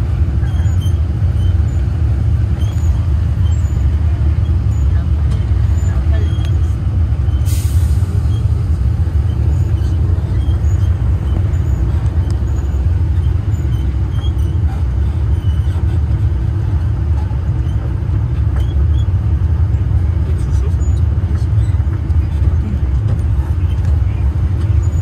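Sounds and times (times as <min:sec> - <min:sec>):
road train engine rumble: 0:00.0 - 0:25.0.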